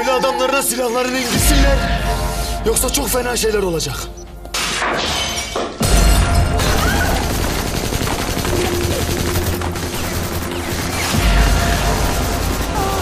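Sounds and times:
background music: 0.0s - 13.0s
rapid heavy gunfire: 6.6s - 13.0s.

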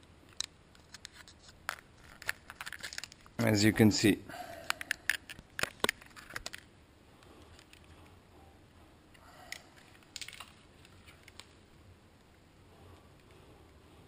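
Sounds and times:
light rustling of cables: 0.0s - 3.8s, 4.5s - 8.2s, 9.0s - 14.0s
plastic clicks: 4.6s - 6.7s, 9.1s - 11.6s.

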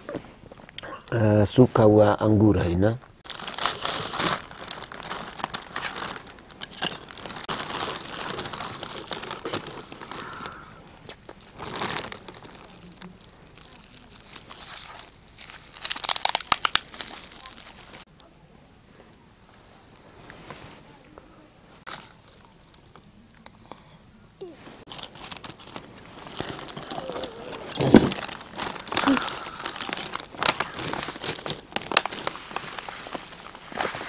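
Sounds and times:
plastic packaging crinkling: 3.2s - 18.1s, 24.8s - 34.0s.

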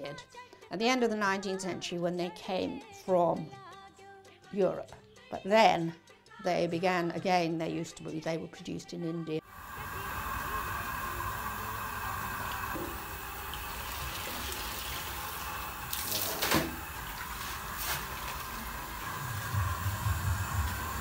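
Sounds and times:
steady water sound: 9.5s - 21.0s
water splashing and dripping: 10.5s - 21.0s.

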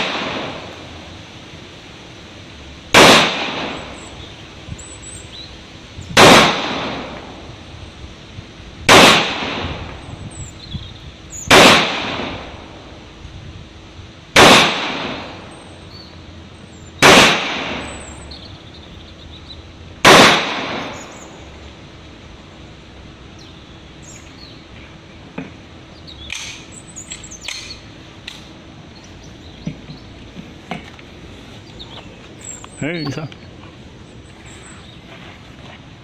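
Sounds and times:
pistol shots: 0.0s - 0.7s, 2.9s - 4.1s, 6.2s - 7.3s, 8.9s - 9.9s, 11.5s - 12.5s, 14.4s - 15.4s, 17.0s - 18.1s, 20.0s - 21.3s.

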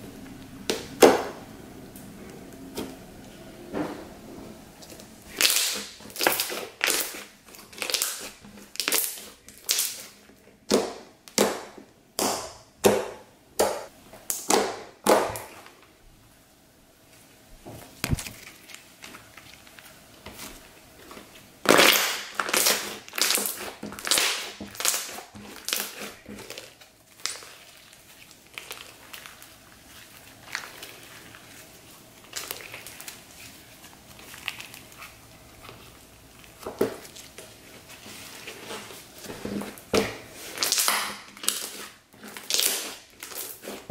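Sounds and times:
slime squishing by hand: 4.8s - 12.4s, 17.8s - 43.9s.

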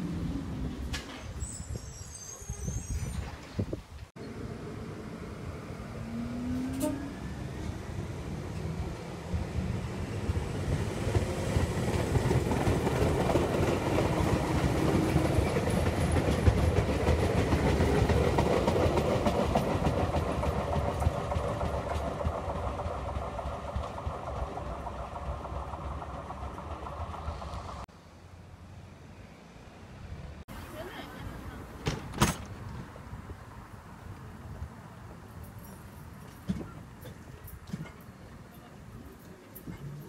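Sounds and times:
train wheels rumbling on rails: 2.6s - 27.9s.

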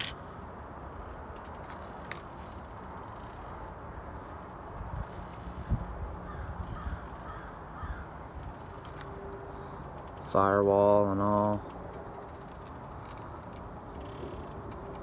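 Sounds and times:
outdoor background noise: 0.0s - 15.0s
faint bird calls: 5.0s - 10.0s.

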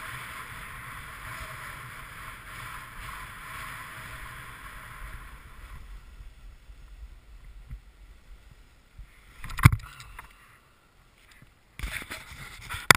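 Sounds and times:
snowboard scraping over snow: 0.0s - 9.4s.

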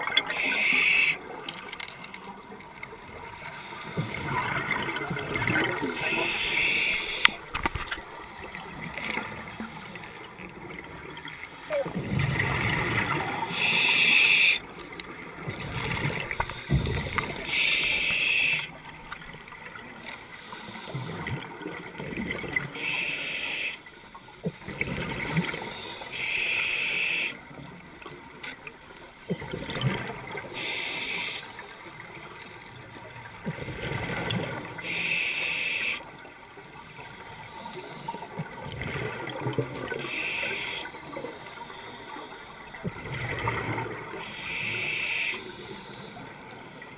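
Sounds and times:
diver breathing through regulator: 6.0s - 7.4s, 13.1s - 14.6s, 17.4s - 18.7s, 22.8s - 23.8s, 25.5s - 27.4s, 30.5s - 31.6s, 34.8s - 36.0s, 40.0s - 42.7s, 44.2s - 46.9s.

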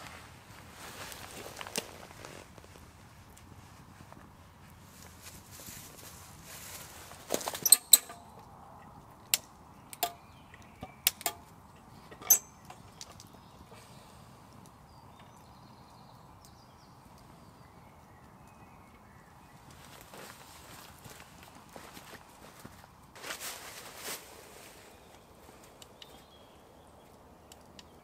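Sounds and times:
metal lantern parts clinking: 7.6s - 8.4s, 12.1s - 13.2s
footsteps on leaves: 19.8s - 25.6s.

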